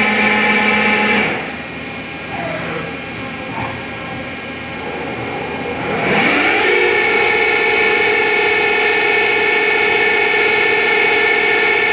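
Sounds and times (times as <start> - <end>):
lathe motor whine: 4.2 - 11.9.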